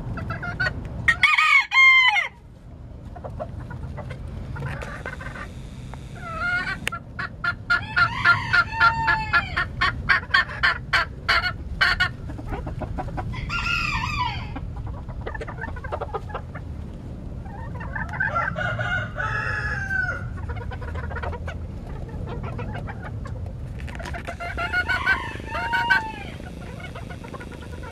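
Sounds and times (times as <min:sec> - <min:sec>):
chickens clucking: 0:00.0 - 0:02.3, 0:03.0 - 0:27.9
low steady rumble: 0:00.0 - 0:27.9
rooster crowing: 0:01.1 - 0:02.4, 0:07.8 - 0:09.6, 0:13.3 - 0:14.6, 0:18.2 - 0:20.3, 0:24.4 - 0:26.6.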